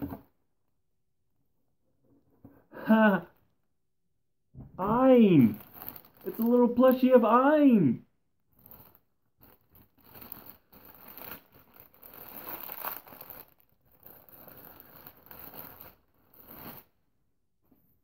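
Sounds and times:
plastic bag crinkling: 5.2s - 7.3s, 8.6s - 16.9s.

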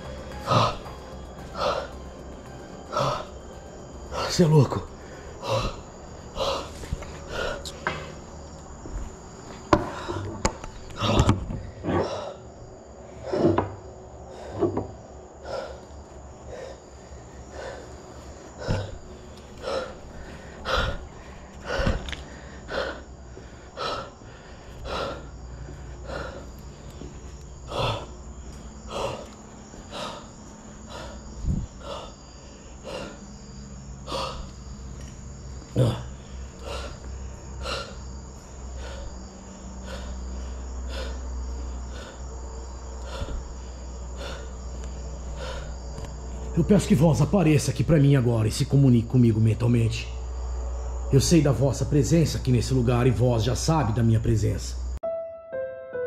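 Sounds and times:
crickets chirring: 0.0s - 55.1s
footsteps on hard floor: 26.9s - 27.4s.

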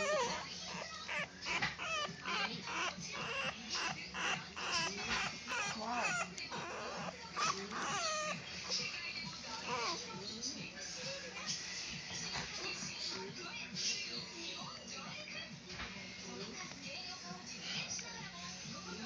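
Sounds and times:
puppies whining and squealing: 0.0s - 10.1s.

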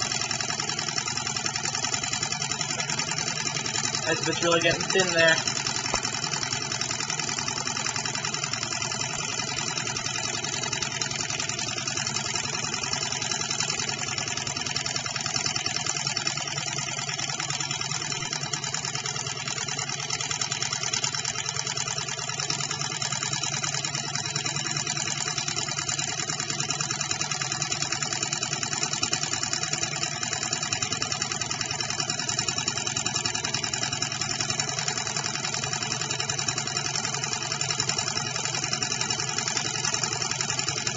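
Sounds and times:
model engine mechanical clatter: 0.0s - 40.9s.

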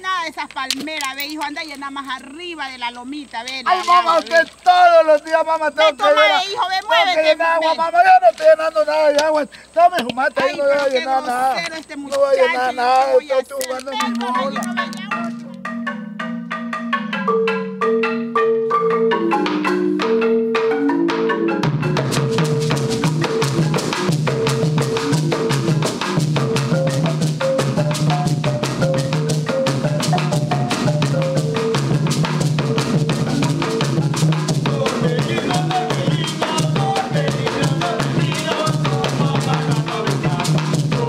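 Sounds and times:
marimba melody: 13.4s - 41.0s
drums beating: 13.9s - 17.4s, 21.1s - 41.0s.

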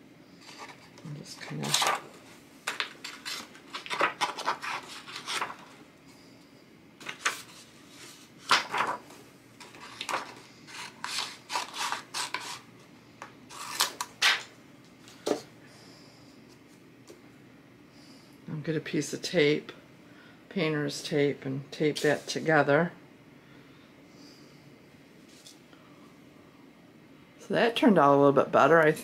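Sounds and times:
paper rustling and rubbing: 0.4s - 5.8s, 7.0s - 12.7s
scissors snipping paper: 9.7s - 12.6s.

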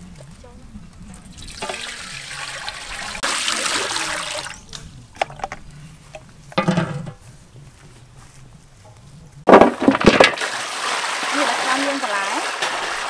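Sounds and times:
water pouring into pot: 1.3s - 4.6s, 10.3s - 13.0s
lid clattering onto pot: 6.5s - 7.2s.

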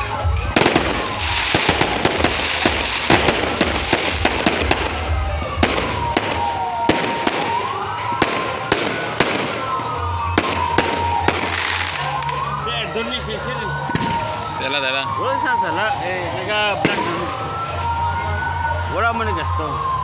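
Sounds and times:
fireworks bangs: 0.0s - 12.6s, 13.8s - 14.4s, 16.8s - 17.6s
fireworks crackling: 0.0s - 13.1s, 13.8s - 15.6s, 16.3s - 18.1s.

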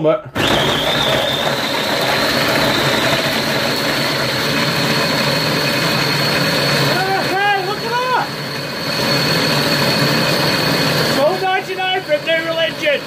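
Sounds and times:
food processor motor whine: 0.3s - 13.0s
crumbs churning in bowl: 0.4s - 7.6s.

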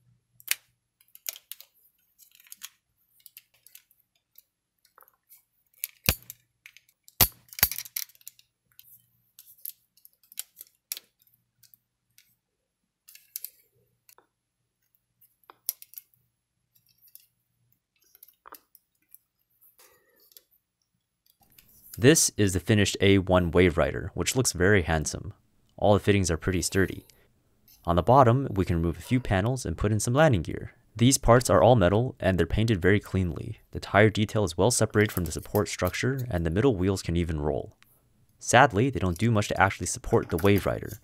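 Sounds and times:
plastic toy parts clicking: 0.4s - 12.3s, 13.1s - 14.2s, 15.5s - 16.2s.

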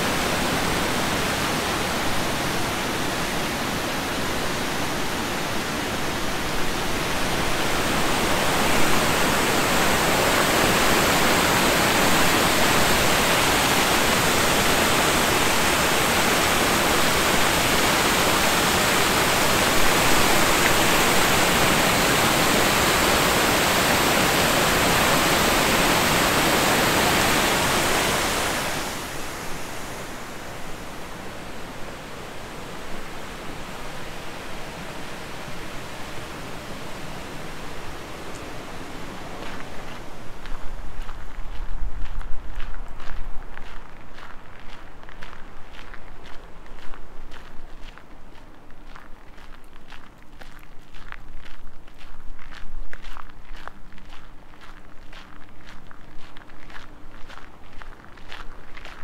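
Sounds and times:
water rushing over weir: 0.0s - 40.2s.

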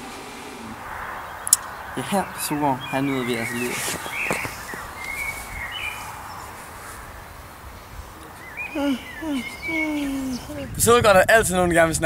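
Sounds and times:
faint bird chirps: 0.5s - 10.7s
person's voice: 2.0s - 3.9s, 8.8s - 12.0s.

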